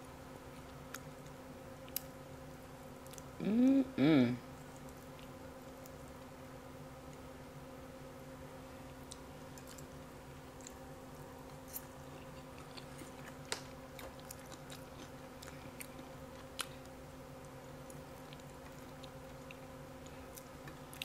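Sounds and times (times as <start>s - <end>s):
faint steady hum: 0.0s - 21.0s
chewing: 8.8s - 10.8s, 11.4s - 17.0s, 17.8s - 21.0s.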